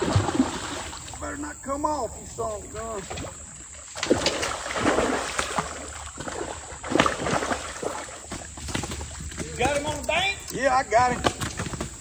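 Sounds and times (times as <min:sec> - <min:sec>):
fish splashing in water: 0:00.0 - 0:01.2, 0:03.0 - 0:09.2.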